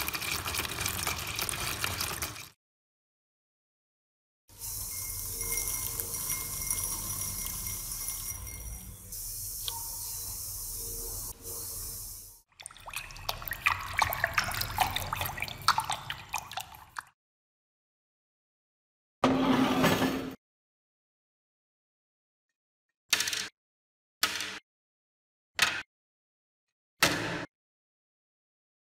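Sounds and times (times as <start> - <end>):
liquid pouring and fizzing: 0.0 - 2.6, 4.7 - 8.4, 12.5 - 17.2
rod stirring in glass bowl: 4.6 - 9.0.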